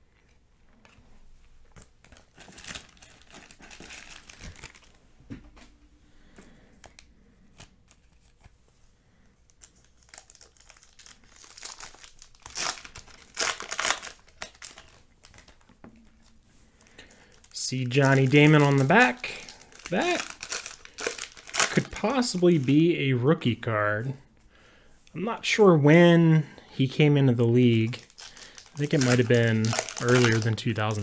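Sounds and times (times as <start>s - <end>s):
card pack wrapper crinkling and tearing: 1.8s - 5.0s, 6.8s - 8.6s, 9.5s - 23.0s, 27.6s - 31.0s.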